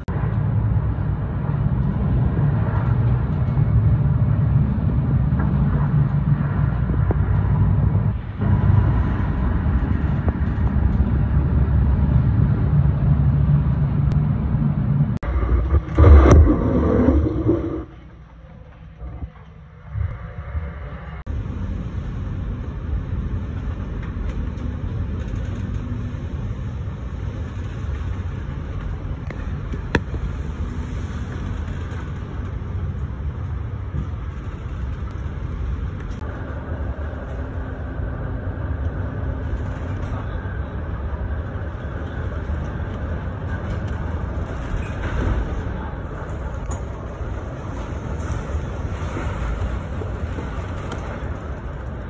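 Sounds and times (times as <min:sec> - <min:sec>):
wind buffeting microphone: 0:00.0 - 0:18.2.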